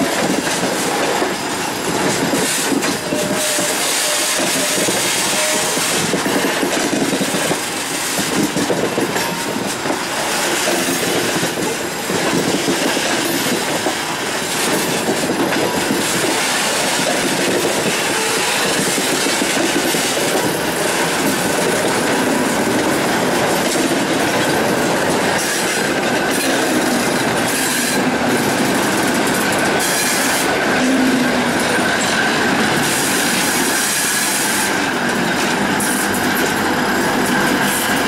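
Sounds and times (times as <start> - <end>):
diesel locomotive: 0.0 - 38.0
train rumble and clatter: 0.0 - 38.0
train wheels squealing: 1.8 - 6.5, 17.7 - 19.4.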